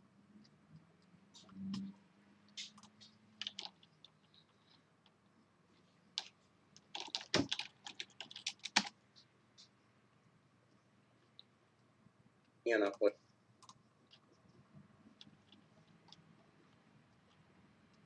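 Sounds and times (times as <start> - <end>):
typing on computer keyboard: 2.7 - 4.4, 6.2 - 9.0, 13.6 - 14.4.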